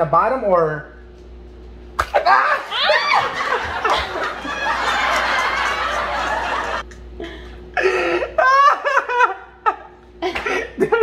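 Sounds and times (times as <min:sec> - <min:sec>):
girl laughing: 0:02.2 - 0:06.8, 0:07.8 - 0:11.0.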